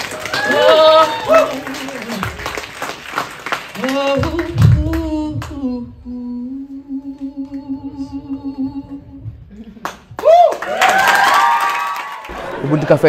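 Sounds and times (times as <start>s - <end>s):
woman singing unaccompanied: 3.8s - 9.5s.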